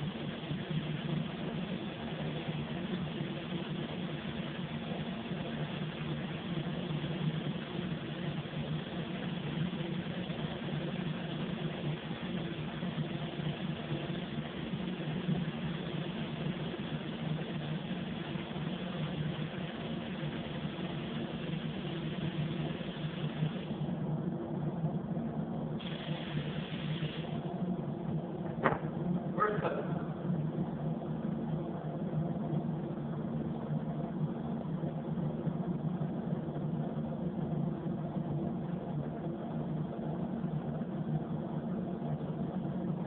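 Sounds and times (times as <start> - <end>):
ventilation hum: 0.0 - 43.0
paint spray gun hissing: 19.0 - 23.8, 25.8 - 27.4.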